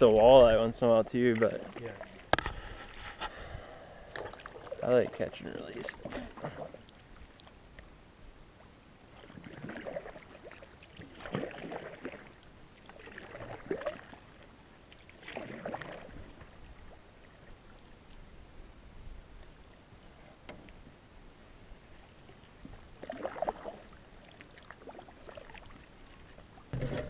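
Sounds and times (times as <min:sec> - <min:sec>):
canoe paddle swishing in water: 0:01.3 - 0:03.4, 0:09.1 - 0:18.2, 0:21.9 - 0:27.0.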